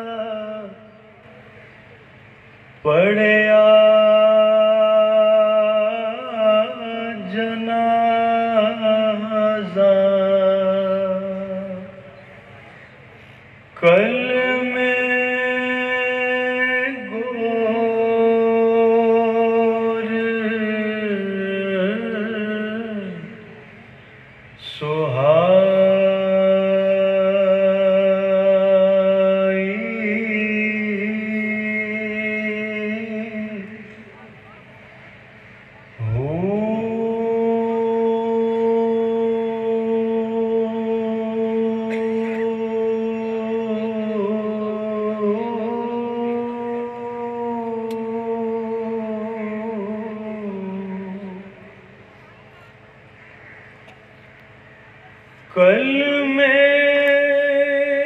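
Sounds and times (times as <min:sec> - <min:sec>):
person singing long held notes: 0:02.8 - 0:12.2, 0:13.8 - 0:23.8, 0:24.6 - 0:34.4, 0:35.9 - 0:52.4.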